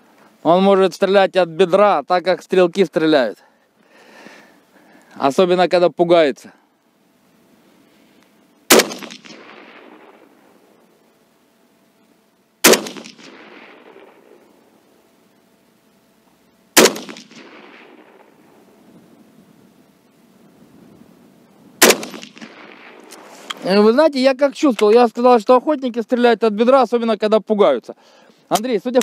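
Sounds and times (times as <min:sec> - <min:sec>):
rifle shots with echo: 0:08.7 - 0:10.7, 0:12.6 - 0:14.7, 0:16.8 - 0:18.8, 0:21.8 - 0:23.3.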